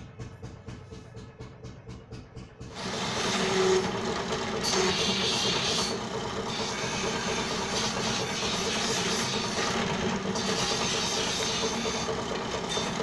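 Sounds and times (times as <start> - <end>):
drill press boring into wood: 2.7 - 13.0.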